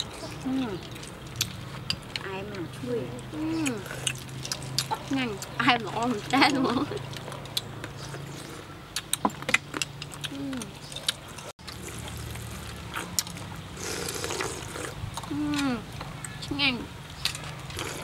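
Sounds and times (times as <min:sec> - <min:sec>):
slurp: 0:13.8 - 0:15.4
person humming: 0:15.3 - 0:15.9.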